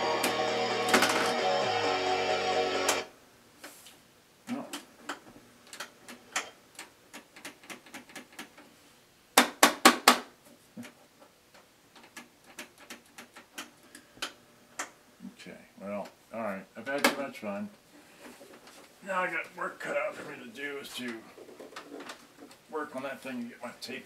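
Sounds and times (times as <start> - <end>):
music from boombox: 0.0 - 3.1.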